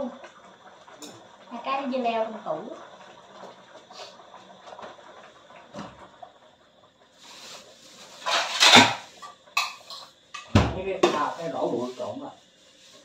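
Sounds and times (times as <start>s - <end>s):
dishes clattering in wire rack: 8.2s - 10.5s.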